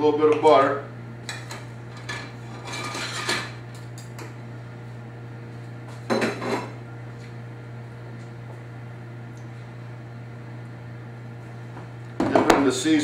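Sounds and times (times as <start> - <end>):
steady low hum: 0.0 - 13.0
dishes clinking and clattering: 1.3 - 3.6, 6.1 - 6.8.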